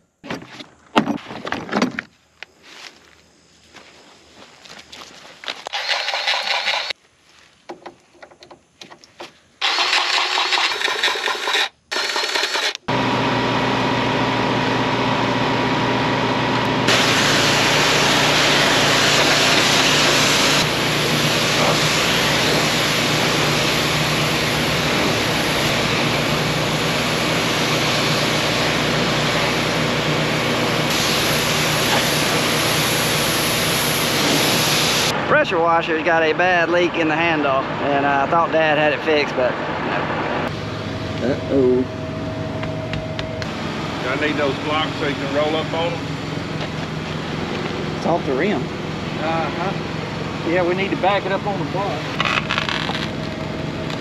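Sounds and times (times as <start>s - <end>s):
engine starting and running: 5.6s - 7.0s, 9.6s - 54.0s
loud hiss: 16.9s - 35.2s.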